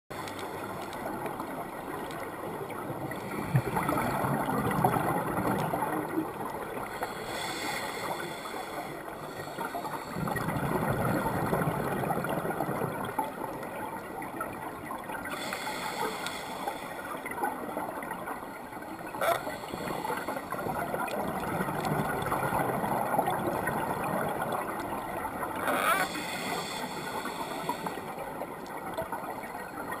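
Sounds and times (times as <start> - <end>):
underwater regulator breathing: 6.9 - 10.4, 15.3 - 17.0, 19.2 - 21.0, 25.7 - 28.2.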